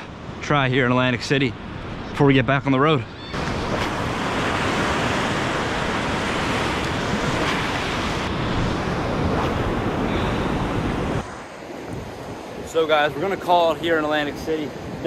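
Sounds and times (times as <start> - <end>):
wind on microphone: 3.1 - 12.7
ocean surf washing on beach: 3.3 - 15.0.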